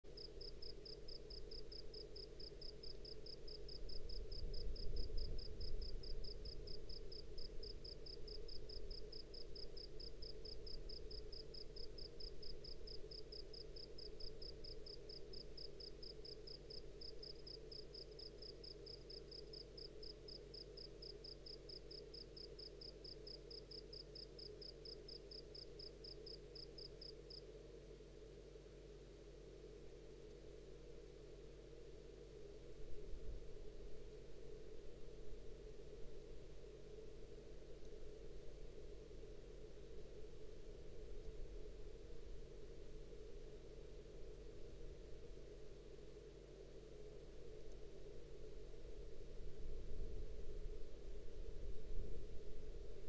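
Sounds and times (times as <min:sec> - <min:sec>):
steady low hum: 0:00.0 - 0:53.0
cricket chirping: 0:00.1 - 0:27.6.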